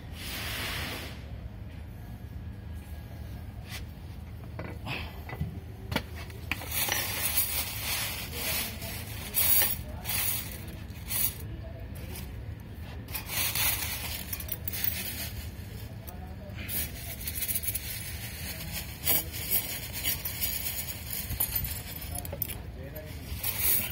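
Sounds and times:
plastic bag rustling: 6.6s - 11.4s.

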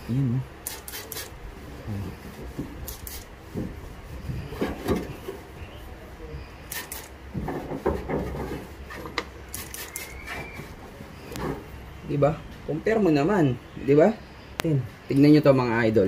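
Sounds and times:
spray bottle squirting: 0.6s - 1.4s, 2.8s - 3.3s, 6.7s - 7.2s, 9.5s - 10.4s.

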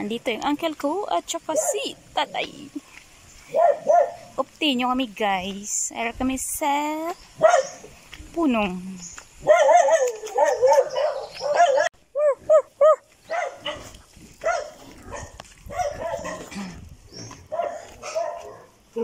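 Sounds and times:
dog barking: 1.5s - 1.8s, 3.5s - 4.3s, 7.4s - 7.8s, 9.4s - 16.5s, 17.5s - 18.8s.

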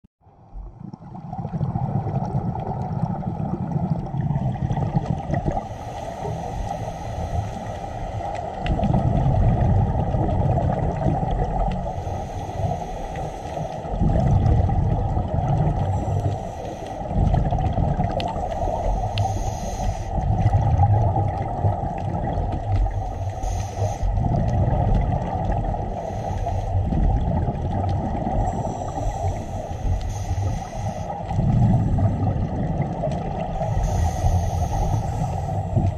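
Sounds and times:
exhaled bubbles rumbling underwater: 0.2s - 35.9s
steady watery hiss: 1.2s - 35.9s
regulator hissing inhalations: 5.6s - 8.2s, 11.8s - 14.0s, 16.0s - 17.2s, 18.4s - 20.2s, 23.0s - 24.2s, 25.9s - 26.9s, 28.5s - 32.2s, 33.6s - 35.9s.

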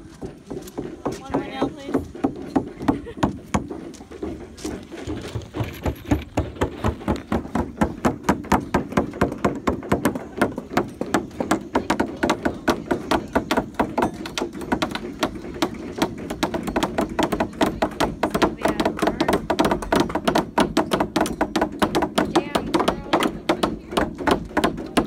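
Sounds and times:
hammers driving nails into wood: 5.1s - 25.0s.

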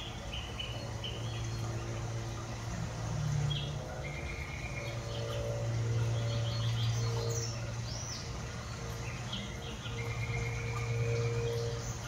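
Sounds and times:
small birds chirping: 0.0s - 2.1s
steady low hum: 0.0s - 12.0s.

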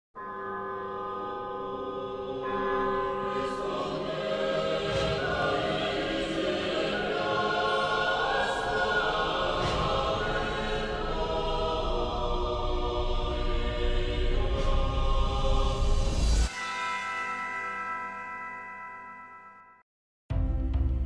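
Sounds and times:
church bells ringing: 0.2s - 12.2s, 16.5s - 19.8s
choir singing slow chant: 0.7s - 16.5s.

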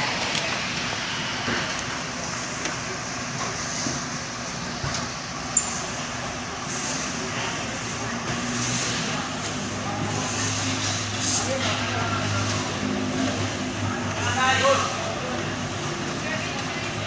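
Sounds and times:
busy warehouse noise: 0.0s - 17.0s.

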